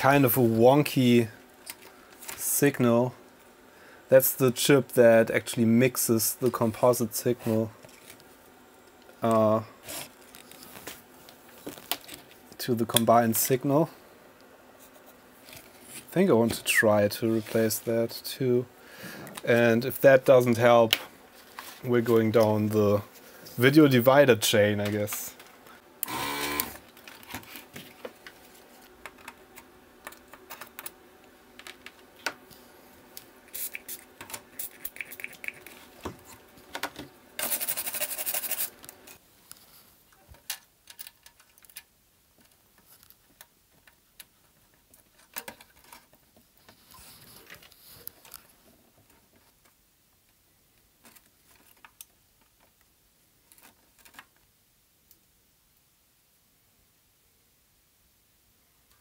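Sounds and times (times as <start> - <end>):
steady hum: 0.0 - 40.0.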